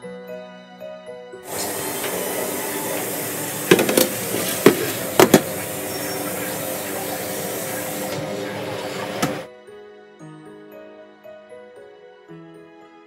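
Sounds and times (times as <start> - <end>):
room noise hiss: 1.5 - 9.5.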